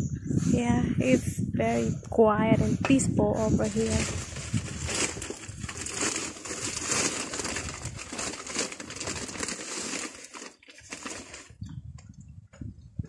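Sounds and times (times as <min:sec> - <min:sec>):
bags rustling and crinkling: 0:03.6 - 0:11.6.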